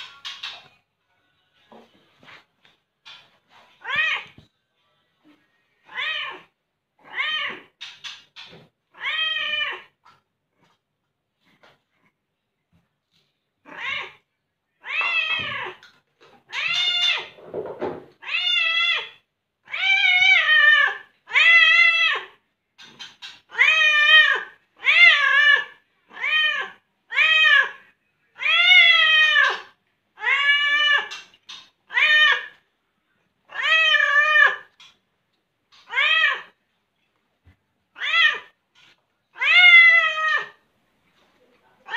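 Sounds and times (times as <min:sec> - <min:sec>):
cat meowing: 0:08.9 - 0:10.0, 0:13.6 - 0:15.9, 0:16.5 - 0:17.4, 0:18.2 - 0:22.4, 0:23.5 - 0:31.2, 0:33.5 - 0:34.8, 0:35.8 - 0:36.6, 0:37.9 - 0:38.6, 0:39.3 - 0:40.6.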